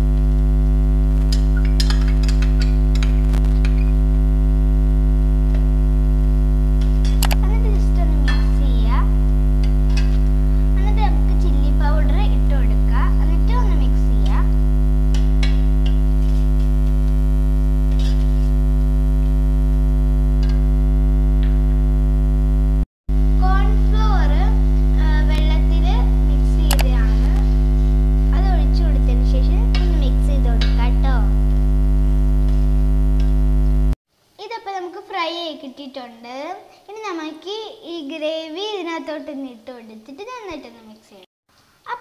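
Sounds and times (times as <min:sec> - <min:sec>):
electrical mains hum: 0:00.0 - 0:41.2.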